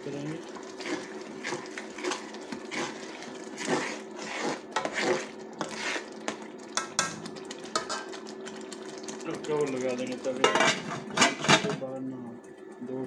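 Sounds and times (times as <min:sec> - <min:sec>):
food frying in oil: 0:00.0 - 0:11.4
metal spoon scraping a pot: 0:03.6 - 0:06.1.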